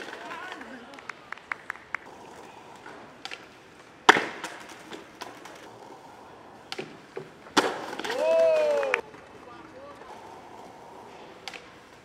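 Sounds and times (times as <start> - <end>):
skateboard clicks: 0.0 - 12.0
skateboard slamming on asphalt: 2.8 - 5.8, 6.6 - 8.9.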